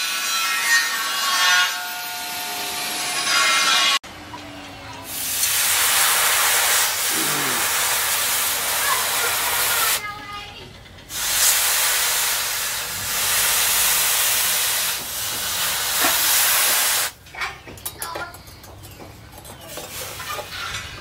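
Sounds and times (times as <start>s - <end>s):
steam hiss from quenching blade: 5.1s - 10.0s, 11.1s - 17.2s.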